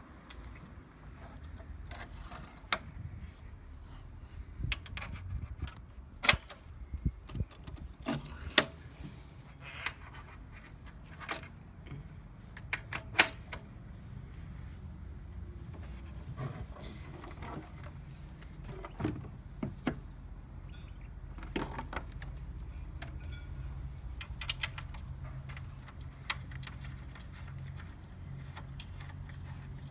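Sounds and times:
plastic and metal parts clicking: 24.2 - 29.9.

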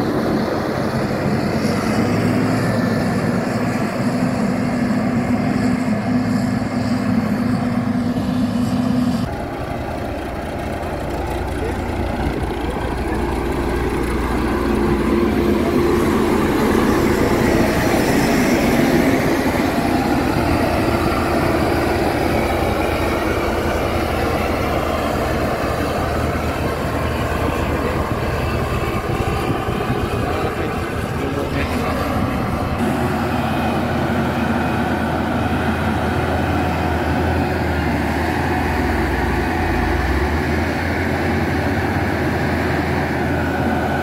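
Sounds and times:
roller diesel engine rumble: 0.0 - 44.0
gravel being compacted: 8.5 - 41.6.

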